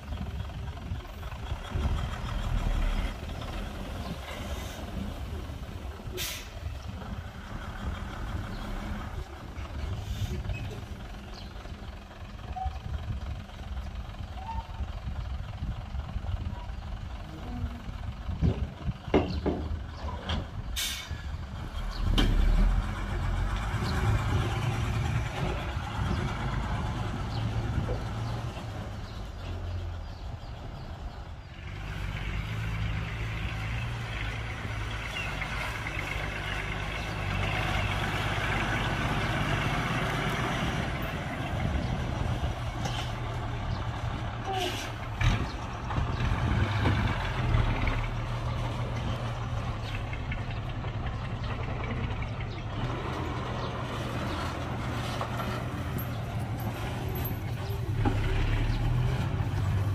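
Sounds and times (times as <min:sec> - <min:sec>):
diesel engines running: 0:00.0 - 0:59.9
air brake hiss: 0:06.2 - 0:06.6, 0:20.8 - 0:21.2.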